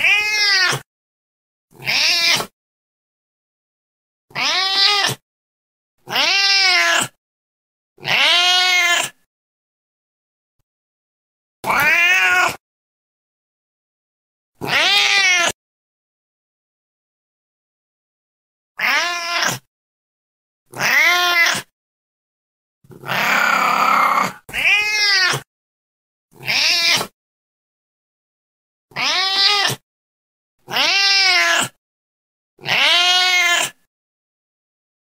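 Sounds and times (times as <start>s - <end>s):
cat meowing: 0.0s - 0.8s, 1.8s - 2.5s, 4.3s - 5.2s, 6.0s - 7.2s, 8.0s - 9.2s, 11.6s - 12.6s, 14.6s - 15.6s, 18.8s - 19.7s, 20.7s - 21.7s, 23.0s - 25.4s, 26.4s - 27.1s, 28.9s - 29.8s, 30.7s - 31.8s, 32.6s - 33.8s.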